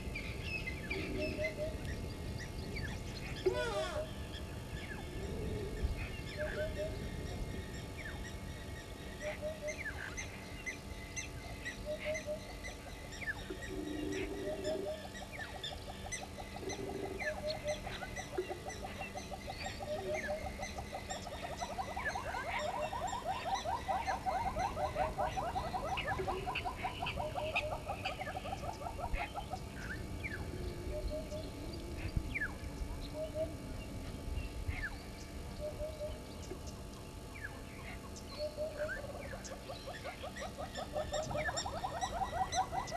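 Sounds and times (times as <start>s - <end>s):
paired lower animal calls: 3.3s - 4.2s, 13.2s - 30.0s.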